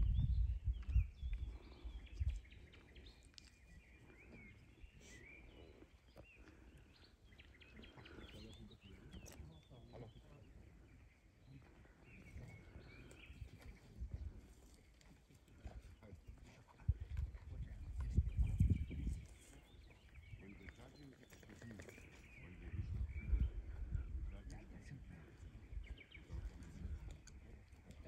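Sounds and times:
low rumbles on microphone: 0.0 - 3.2, 11.4 - 28.0
small birds chirping: 0.0 - 28.0.

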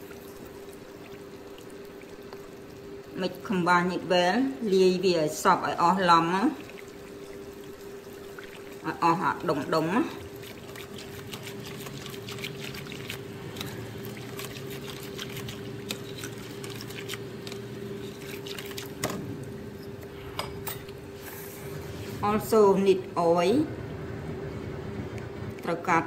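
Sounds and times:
steady background hum: 0.0 - 26.0
whisk stirring batter: 8.4 - 19.2.

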